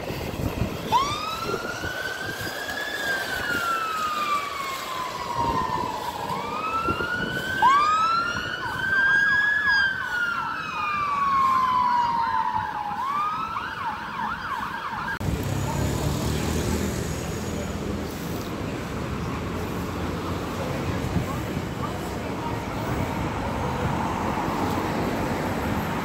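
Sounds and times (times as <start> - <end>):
fire engine siren wailing: 0.0 - 18.2.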